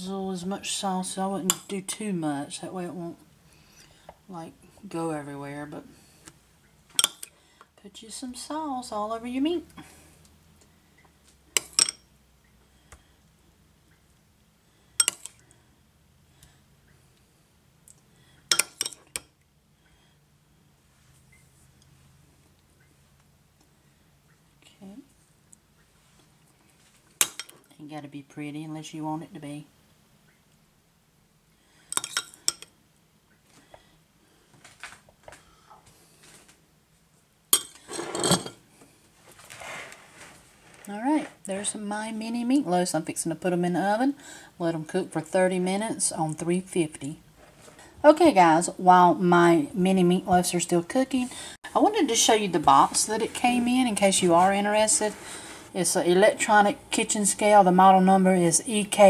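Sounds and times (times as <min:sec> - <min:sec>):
metal spoon clinking on dishes: 0:07.0 - 0:07.3, 0:11.6 - 0:12.1, 0:15.0 - 0:15.4, 0:18.5 - 0:19.3, 0:31.9 - 0:32.7, 0:37.6 - 0:38.6.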